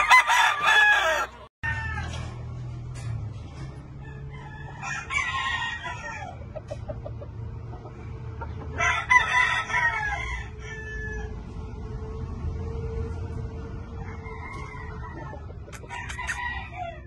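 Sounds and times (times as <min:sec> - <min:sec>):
rooster crowing: 0:00.0 - 0:02.3, 0:04.0 - 0:06.4, 0:08.7 - 0:11.4, 0:13.9 - 0:17.0
chicken clucking: 0:05.9 - 0:08.9, 0:14.0 - 0:16.6.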